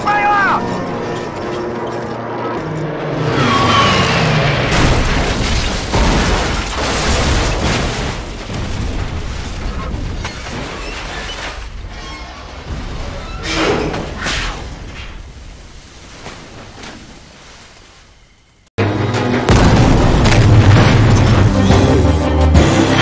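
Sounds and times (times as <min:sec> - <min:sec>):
loud crash and explosion: 0:04.7 - 0:10.8, 0:19.4 - 0:22.0.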